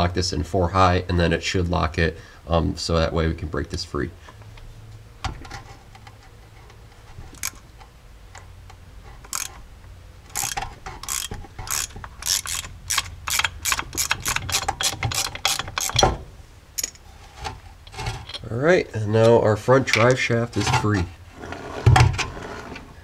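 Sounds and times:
socket ratchet clicking: 7.4s - 7.6s, 9.3s - 9.6s, 10.3s - 16.1s.

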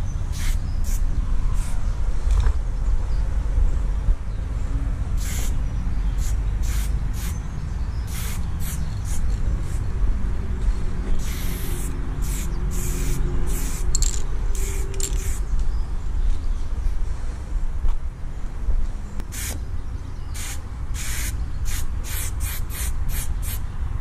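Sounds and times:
steady low rumble: 0.0s - 21.8s
spray paint can hissing: 0.3s - 1.0s, 5.2s - 5.6s, 6.2s - 7.4s, 8.1s - 9.8s, 11.2s - 15.4s, 19.3s - 19.6s, 20.4s - 23.6s.

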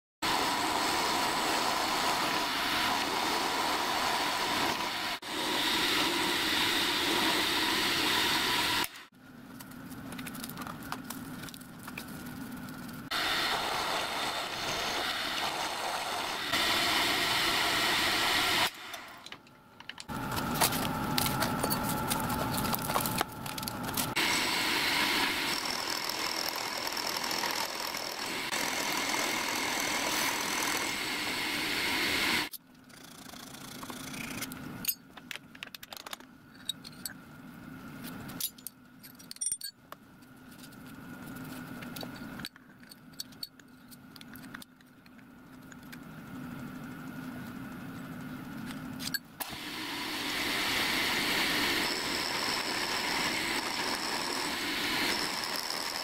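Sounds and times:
end mill cutting metal: 13.1s - 19.1s, 49.4s - 56.0s
milling machine motor hum: 13.1s - 19.3s, 20.1s - 32.5s.

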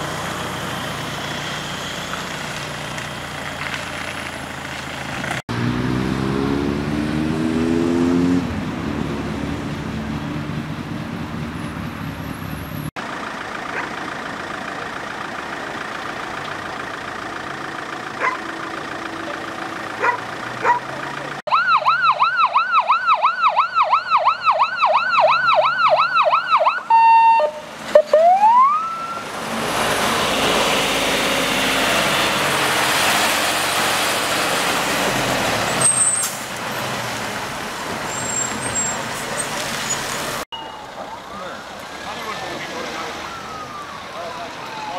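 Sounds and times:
vehicle engine revving: 0.0s - 13.1s, 16.3s - 21.5s, 29.1s - 40.5s
fire engine driving past: 0.0s - 44.9s
fire engine siren: 21.4s - 35.1s, 40.5s - 44.9s.

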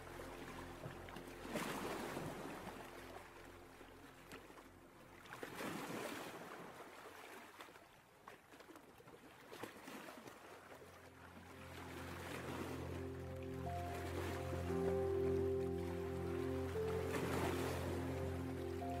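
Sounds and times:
ocean surf washing: 11.5s - 19.0s.

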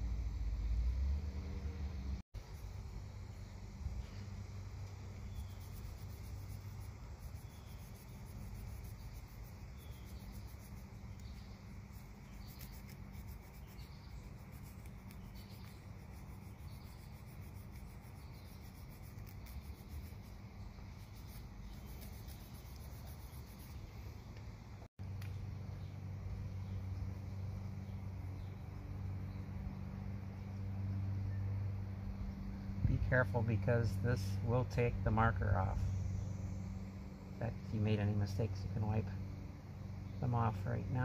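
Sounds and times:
abrasive pad scratching metal: 11.8s - 20.4s.

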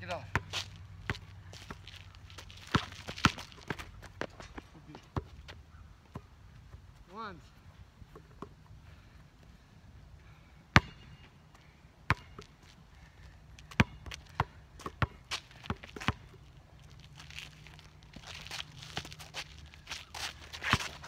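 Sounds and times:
basketball bouncing on asphalt: 0.1s - 6.9s, 10.7s - 21.0s
shoes scuffing on court: 0.3s - 6.2s, 13.6s - 21.0s.

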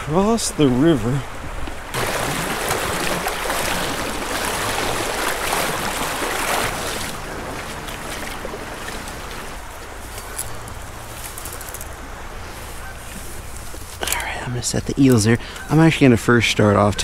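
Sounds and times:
river rushing over rocks: 2.0s - 8.6s.

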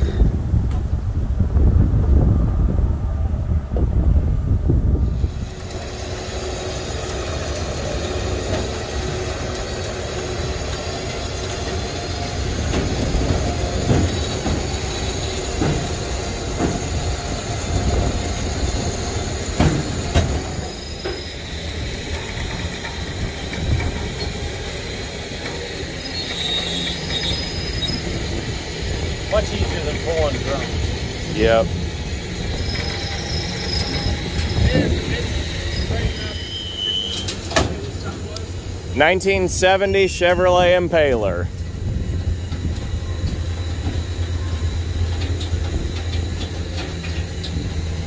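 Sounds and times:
steady mechanical hum: 0.0s - 48.0s
car squeaking and creaking: 26.0s - 28.2s, 32.4s - 38.2s.

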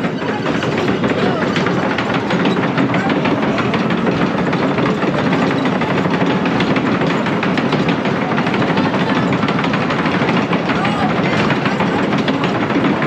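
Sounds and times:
roller coaster lift rattling: 0.0s - 13.0s.

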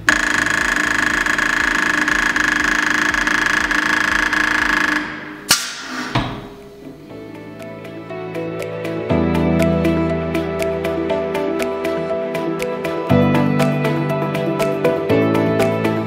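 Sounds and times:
needle marker rattling buzz: 0.0s - 5.5s
sharp click: 4.6s - 6.4s.

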